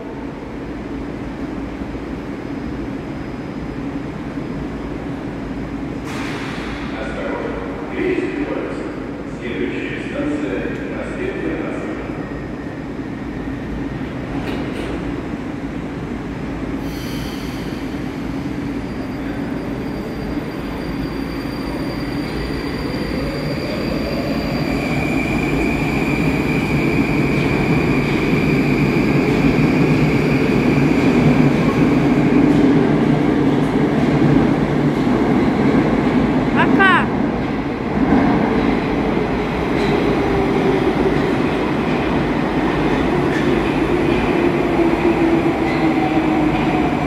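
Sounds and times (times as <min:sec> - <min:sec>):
train rumbling: 0:00.0 - 0:47.0
high wheel squeal: 0:18.8 - 0:24.7.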